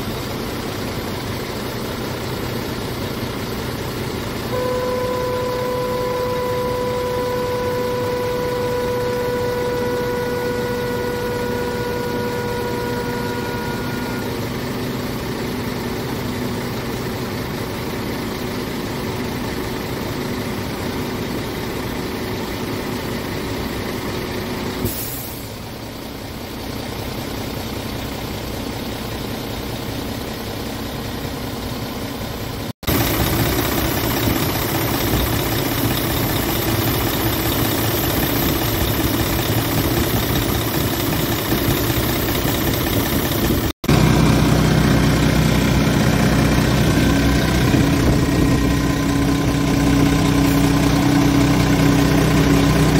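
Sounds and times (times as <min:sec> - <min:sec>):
diesel truck engine idling: 0:00.0 - 0:52.9
steady high tone: 0:04.5 - 0:17.0, 0:32.8 - 0:52.9
brief hiss: 0:24.8 - 0:25.7.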